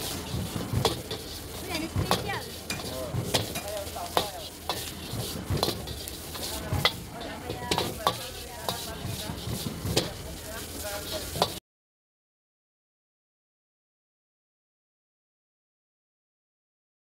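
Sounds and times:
food sizzling: 0:00.0 - 0:11.6
metal utensils clanking on wok: 0:00.0 - 0:11.6.

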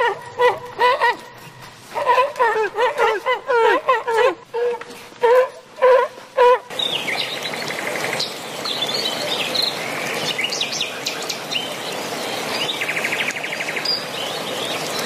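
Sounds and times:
stream rushing: 0:00.0 - 0:15.0
small birds chirping: 0:06.7 - 0:15.0.

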